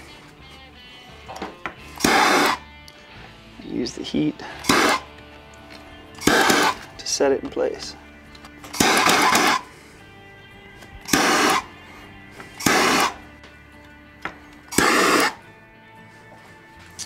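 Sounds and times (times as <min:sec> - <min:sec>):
gas torch flame rushing: 0:02.0 - 0:02.6, 0:04.6 - 0:05.1, 0:06.2 - 0:06.8, 0:08.8 - 0:09.7, 0:11.1 - 0:11.7, 0:12.6 - 0:13.2, 0:14.7 - 0:15.4.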